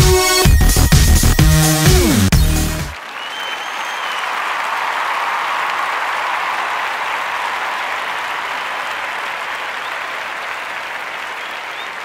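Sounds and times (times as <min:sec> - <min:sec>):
crowd applause: 0:02.8 - 0:12.0.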